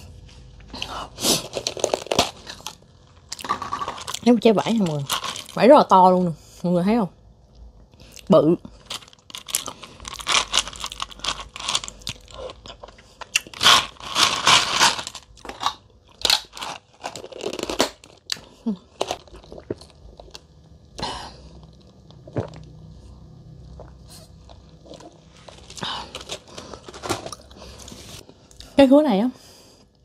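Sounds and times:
person chewing wetly: 0:09.1 - 0:13.6, 0:19.1 - 0:26.3.

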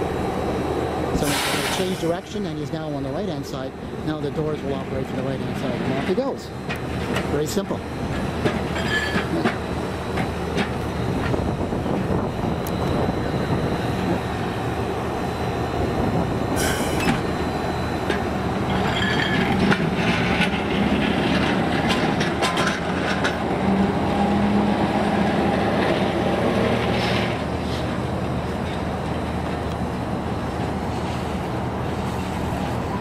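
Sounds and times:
streetcar rumble: 0:00.0 - 0:33.0
streetcar wheels clicking over rails: 0:04.2 - 0:13.0, 0:18.0 - 0:33.0
thin wheel squeal: 0:08.8 - 0:09.5.

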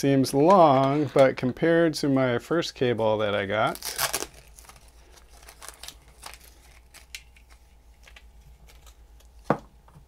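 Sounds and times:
cable rustling and clicking: 0:03.8 - 0:09.4.

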